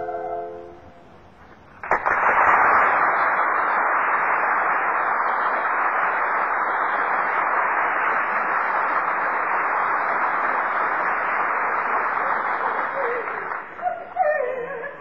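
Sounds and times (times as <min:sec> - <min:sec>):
soprano holding a note: 0:00.0 - 0:01.2
audience applause: 0:01.5 - 0:14.4.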